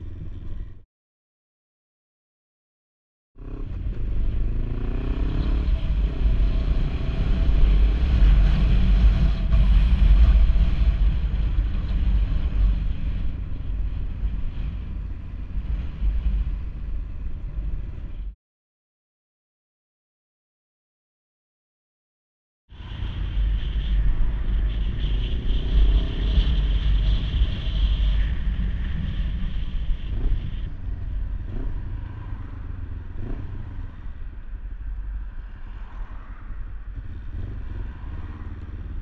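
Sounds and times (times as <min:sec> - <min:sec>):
motorcycle engine revving: 0:03.4 - 0:14.7, 0:22.9 - 0:34.2, 0:36.9 - 0:39.0
wind rumble on microphone: 0:03.4 - 0:18.4, 0:22.7 - 0:39.0.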